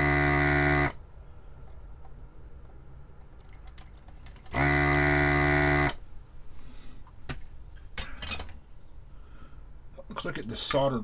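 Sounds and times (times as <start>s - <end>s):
desoldering pump buzzing: 0.0s - 1.0s, 4.5s - 6.0s.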